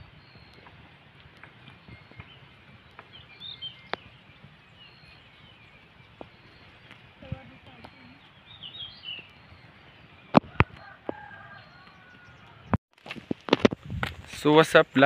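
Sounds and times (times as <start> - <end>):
high bird chirps: 1.4 - 12.8.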